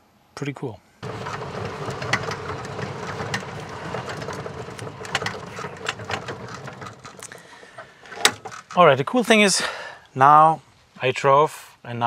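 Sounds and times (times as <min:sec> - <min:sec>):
electric cart motor humming: 0:01.0 - 0:08.7
rattles and clicks: 0:01.0 - 0:08.9.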